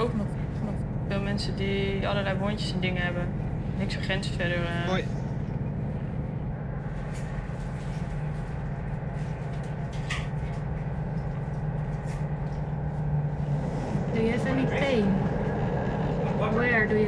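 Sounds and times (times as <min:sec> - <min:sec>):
ship machinery drone: 0:00.0 - 0:17.0.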